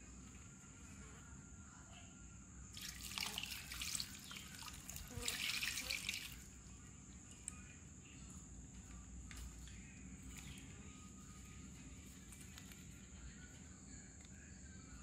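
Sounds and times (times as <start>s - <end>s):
liquid pouring and splashing: 2.8s - 6.5s.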